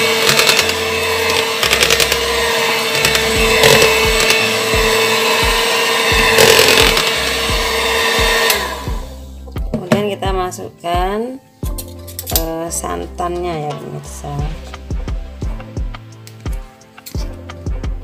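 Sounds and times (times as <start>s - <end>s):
electric hand mixer running: 0.0s - 9.2s.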